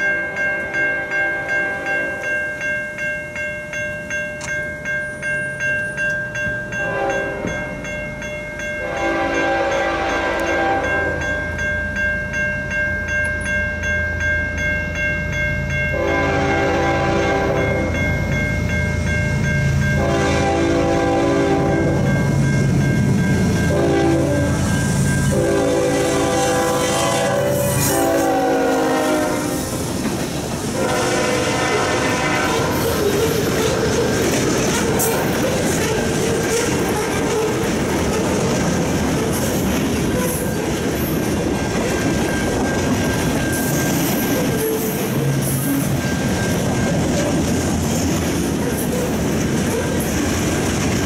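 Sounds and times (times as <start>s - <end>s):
rumble of rolling train: 0.0s - 51.0s
locomotive air horn blasts: 6.8s - 7.4s, 8.8s - 11.2s, 16.0s - 17.8s, 20.0s - 22.0s, 23.7s - 24.6s, 25.3s - 29.8s, 30.8s - 33.0s.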